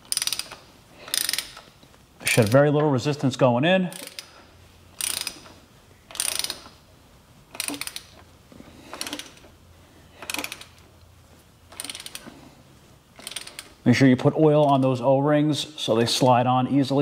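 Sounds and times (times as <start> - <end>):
ratchet wrench clicking: 0.0 - 1.7, 3.9 - 6.8, 7.5 - 8.2, 8.9 - 9.5, 10.2 - 10.9, 11.7 - 12.3, 13.2 - 13.8.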